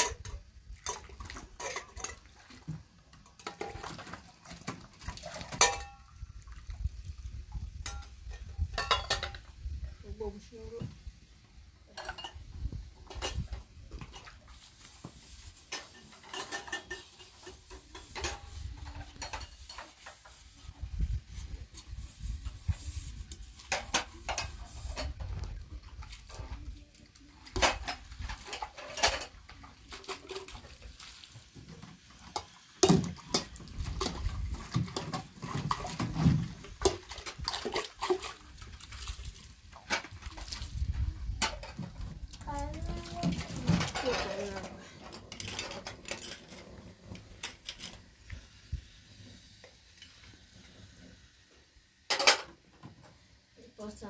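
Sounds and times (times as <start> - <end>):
metal dishes clinking in basin: 0.0 - 2.7, 3.3 - 6.1, 7.8 - 9.5, 11.9 - 14.7, 15.6 - 20.4, 23.7 - 25.2, 27.5 - 30.8, 42.8 - 48.0, 52.1 - 52.5
water splashing: 0.0 - 9.5, 23.4 - 41.7.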